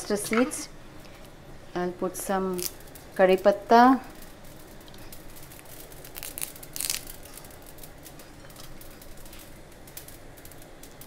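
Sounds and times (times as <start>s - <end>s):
leaves rustling into pan: 2.3s - 11.0s
crackling clicks from hot pan: 4.1s - 11.0s.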